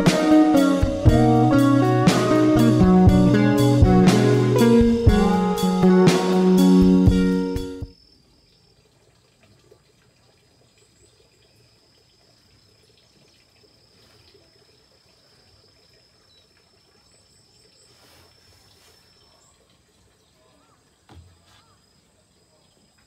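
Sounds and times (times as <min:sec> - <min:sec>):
faint high insect trill: 0:07.9 - 0:09.6, 0:10.2 - 0:23.0
faint chirps: 0:10.8 - 0:23.0.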